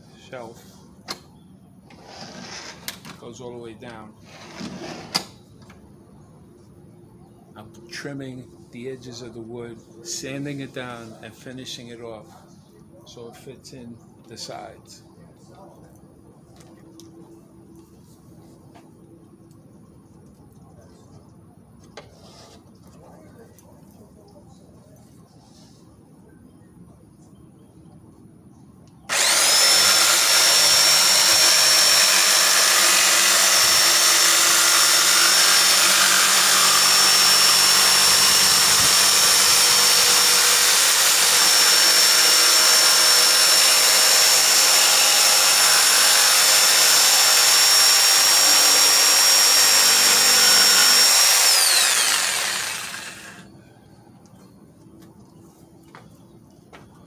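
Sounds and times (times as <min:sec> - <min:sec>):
jigsaw cutting wood: 0:01.9 - 0:02.8, 0:29.1 - 0:53.4.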